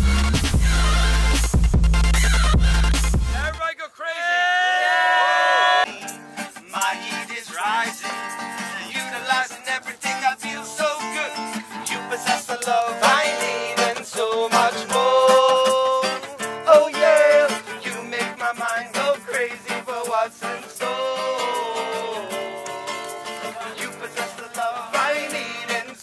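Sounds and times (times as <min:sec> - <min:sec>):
person singing: 0:00.5 - 0:01.5, 0:02.2 - 0:03.6, 0:05.0 - 0:26.0
acoustic guitar strumming: 0:05.8 - 0:26.0.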